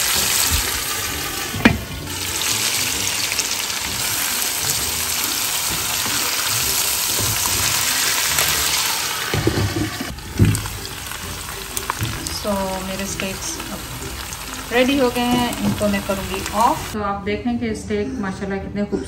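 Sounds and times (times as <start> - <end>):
steaks sizzling in a frying pan: 0.0 - 17.0.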